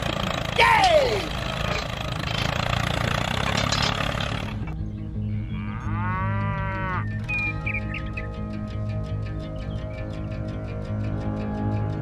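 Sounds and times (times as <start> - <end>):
background music with steady beat: 4.6 - 12.0
cow mooing: 5.3 - 7.2.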